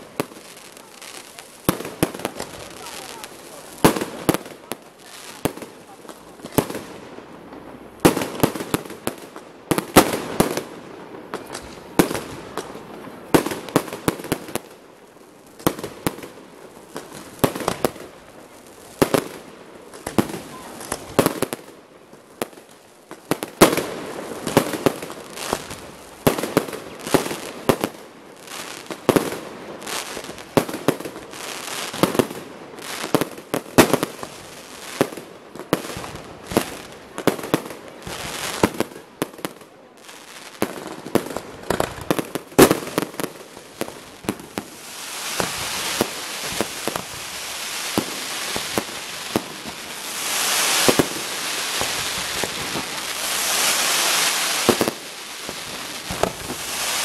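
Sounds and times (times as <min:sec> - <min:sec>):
fireworks bursting: 0:00.0 - 0:57.0.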